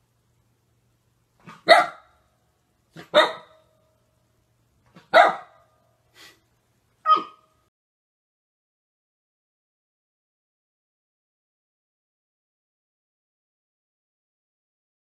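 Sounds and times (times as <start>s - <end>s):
puppy barking: 1.4s - 2.2s, 3.0s - 3.7s, 4.9s - 5.7s, 7.0s - 7.6s.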